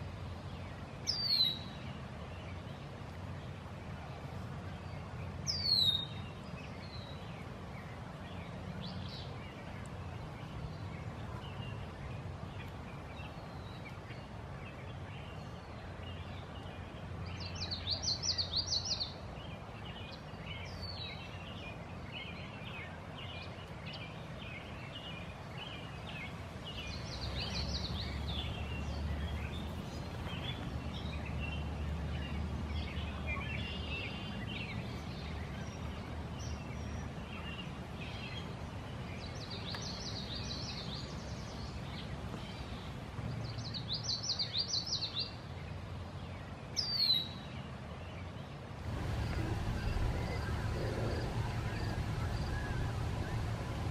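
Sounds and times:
birds chirping: 4.7s - 45.8s, 48.8s - 53.9s
low steady rumble: 48.8s - 53.9s.

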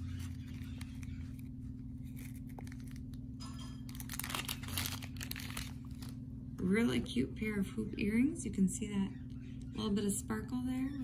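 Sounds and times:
plastic bag crinkling: 0.0s - 6.2s
low hum: 0.0s - 11.0s.

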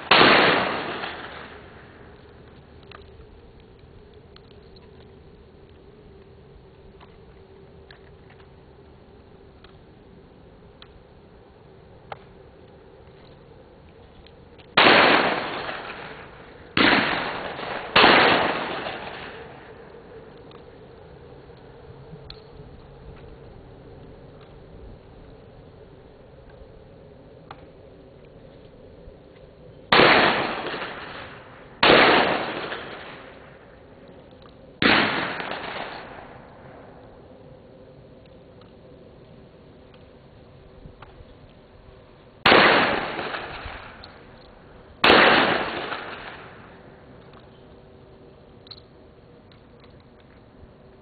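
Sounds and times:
shotgun shots: 0.0s - 1.6s, 14.8s - 16.2s, 16.8s - 19.5s, 29.9s - 33.4s, 34.8s - 36.4s, 42.4s - 44.0s, 45.0s - 46.5s.

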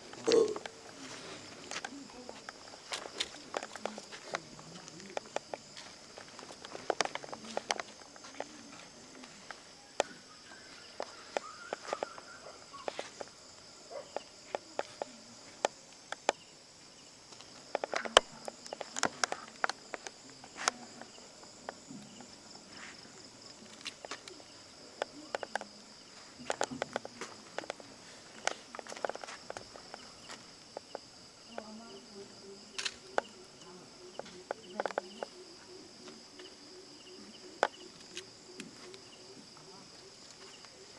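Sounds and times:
crickets trilling: 0.0s - 40.9s
sharp clicks and light knocks: 1.6s - 10.2s, 17.3s - 22.4s, 26.4s - 31.7s.

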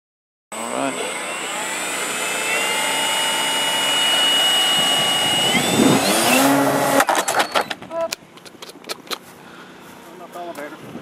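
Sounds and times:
model plane motor whine: 0.6s - 7.8s.

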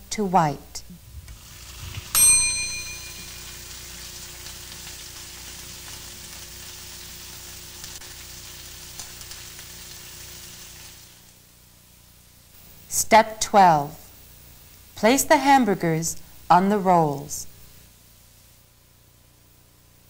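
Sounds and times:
burgers sizzling in a frying pan: 1.2s - 18.8s
kitchen timer bell ding: 2.1s - 3.6s.

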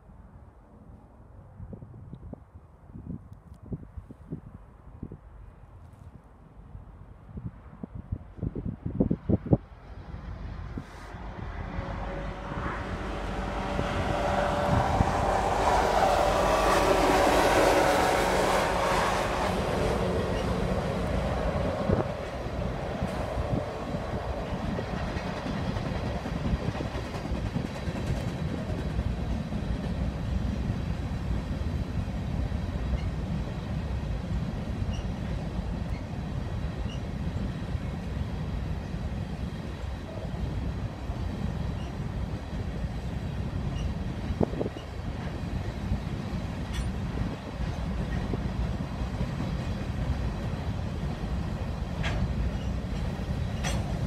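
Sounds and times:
diesel locomotive engines passing: 6.5s - 54.0s
train wheels clattering over rail joints: 24.1s - 30.1s, 43.6s - 54.0s.

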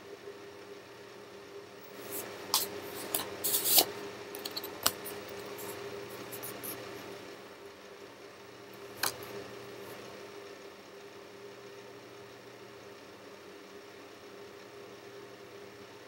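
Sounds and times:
faint steady hum: 0.0s - 16.0s
paper cards rustling: 1.9s - 7.0s.

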